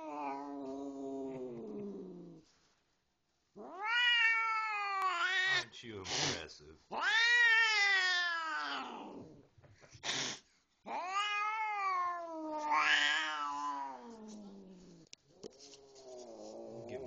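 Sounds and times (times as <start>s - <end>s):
cat yowling: 3.6s - 5.7s, 6.9s - 9.2s, 10.9s - 14.7s.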